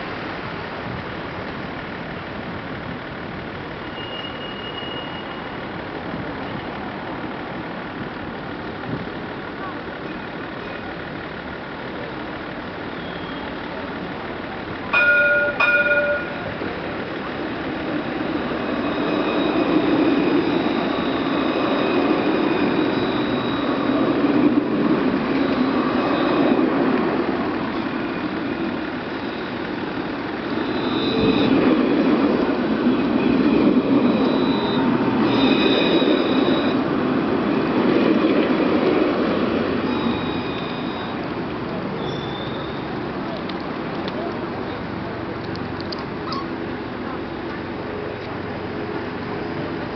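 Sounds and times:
tram wheels and motors rumbling: 0.0s - 49.9s
short bell-like tone: 15.0s - 16.6s.

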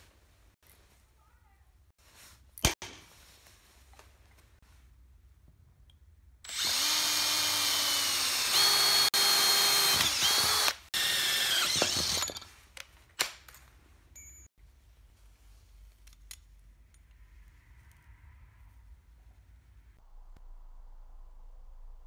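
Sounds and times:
electric drill boring through iron: 6.5s - 12.4s.

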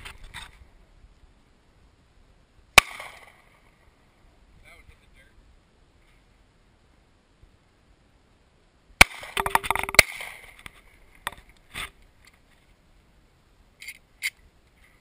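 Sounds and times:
handgun shots: 2.8s - 3.4s, 9.0s - 10.5s.

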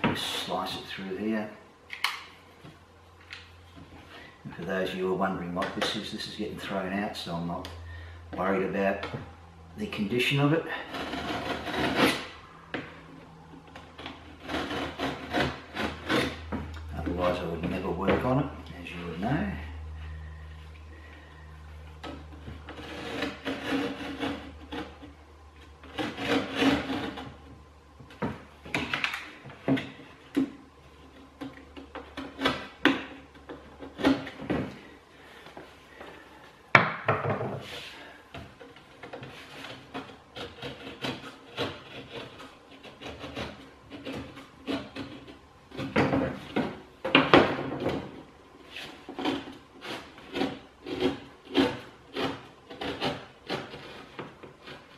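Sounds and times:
knife scoring plasterboard: 9.9s - 13.1s, 13.8s - 18.3s, 22.0s - 36.4s, 37.4s - 54.9s.

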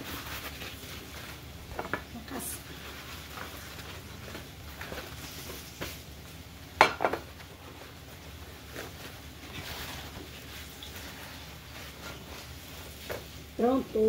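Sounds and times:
dishes clinking and knocking: 6.8s - 7.3s.

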